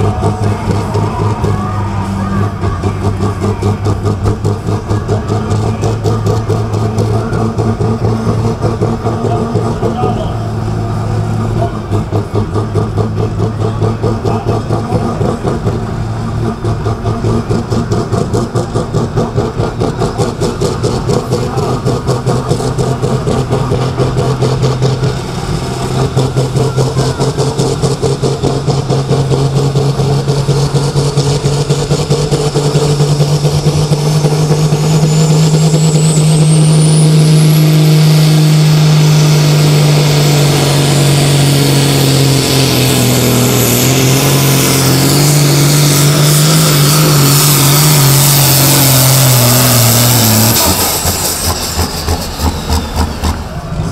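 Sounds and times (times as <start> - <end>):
diesel engine revving hard: 0.0 - 53.9
turbo whine rising in pitch: 31.2 - 53.9.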